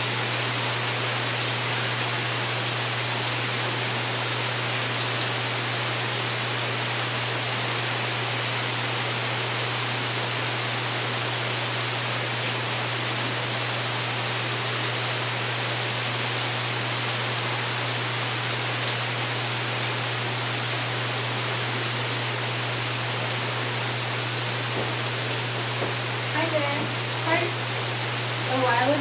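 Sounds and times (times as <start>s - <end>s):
rain pattering on a roof: 0.0s - 29.0s.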